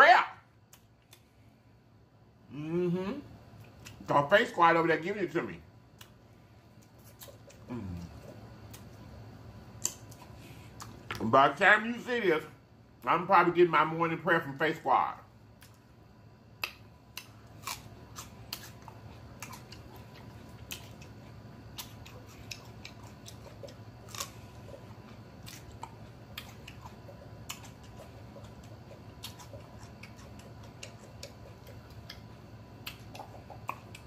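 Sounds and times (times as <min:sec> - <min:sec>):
chewing crunches: 0:05.9 - 0:09.1, 0:09.7 - 0:11.2, 0:16.6 - 0:34.0
wet mouth clicks: 0:25.8 - 0:34.0.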